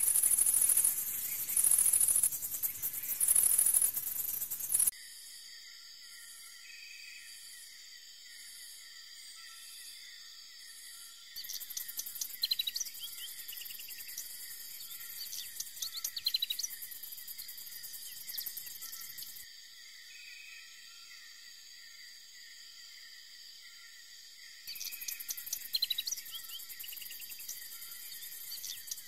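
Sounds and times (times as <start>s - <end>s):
bird chirps: 0.0s - 4.9s, 10.9s - 19.4s, 24.7s - 29.0s
crickets chirping: 0.0s - 29.0s.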